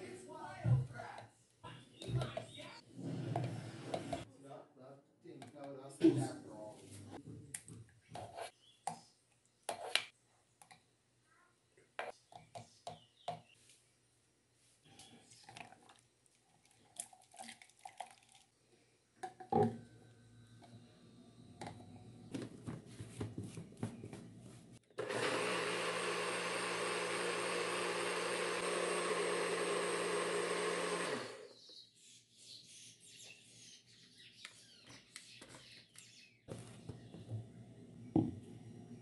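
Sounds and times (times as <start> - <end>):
blender motor running: 25.0 - 31.5.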